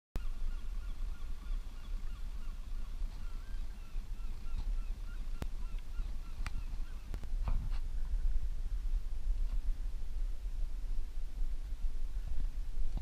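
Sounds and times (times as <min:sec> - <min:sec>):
seabirds calling: 0:00.2 - 0:07.4
low steady rumble: 0:00.2 - 0:13.0.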